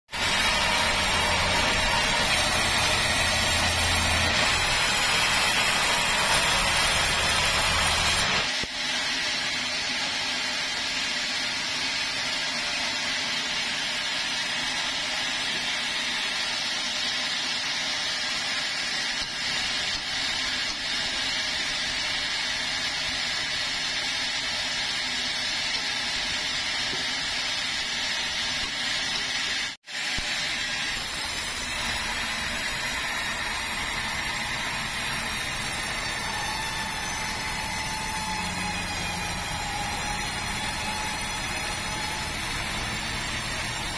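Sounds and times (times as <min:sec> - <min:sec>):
band saw cutting timber: 0:00.1 - 0:43.9.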